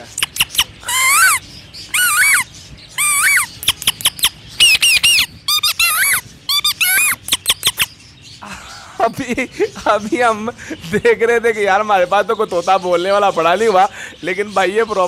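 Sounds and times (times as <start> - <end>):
man mimicking bird calls: 0.0 - 9.9
sharp clicks: 0.2 - 0.7.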